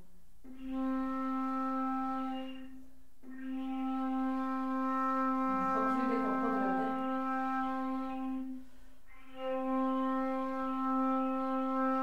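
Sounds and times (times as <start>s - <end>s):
flute holding low note: 0.4s - 12.0s
wavering sound: 0.5s - 12.0s
flutist breath: 8.4s - 9.3s.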